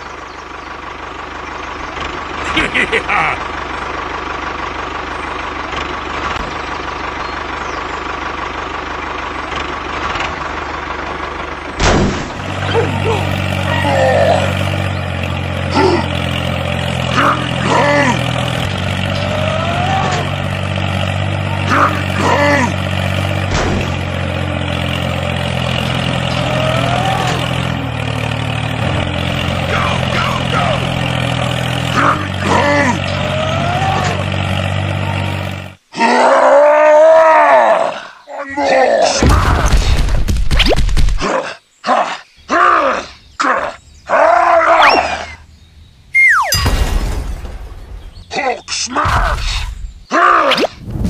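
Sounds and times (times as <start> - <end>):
tractor engine running: 0.0 - 35.9.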